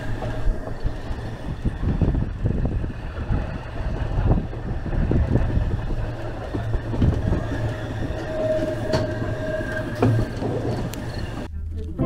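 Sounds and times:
sharp rail clicks: 0.0 - 11.5
train rumbling on rails: 0.0 - 12.0
faint high wheel squeal: 6.3 - 11.5.

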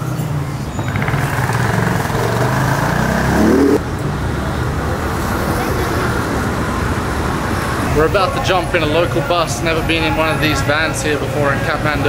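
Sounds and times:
street traffic noise: 0.0 - 12.0
vehicle engine revving: 0.8 - 3.9.

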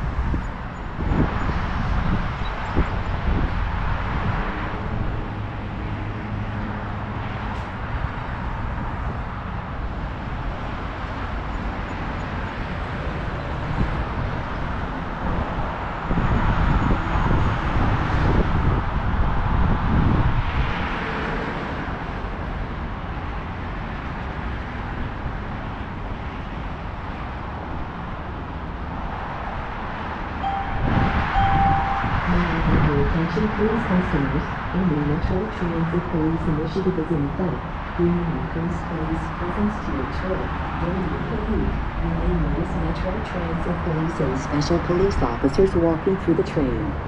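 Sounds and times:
train rumbling at platform: 0.0 - 47.0
short steady beep: 30.4 - 32.4.

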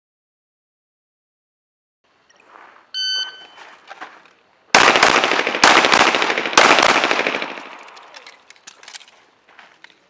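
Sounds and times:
shot timer beep: 3.0 - 3.6
rapid pistol shots: 4.7 - 8.1.

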